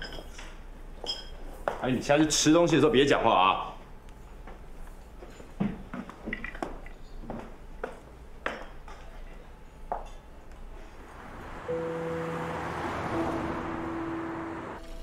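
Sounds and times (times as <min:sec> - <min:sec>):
music: 0:11.7 - 0:15.0.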